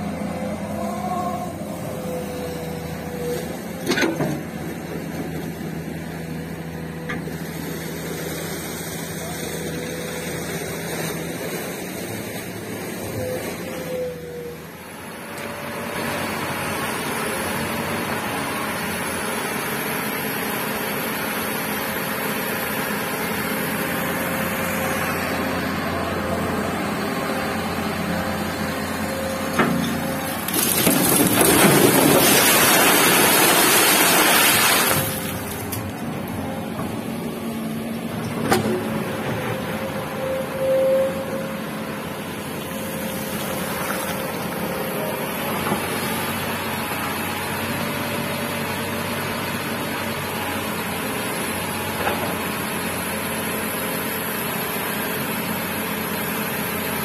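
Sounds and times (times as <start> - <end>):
excavator diesel engine running: 0.0 - 57.0
gravel dumped into steel truck bed: 30.2 - 35.8.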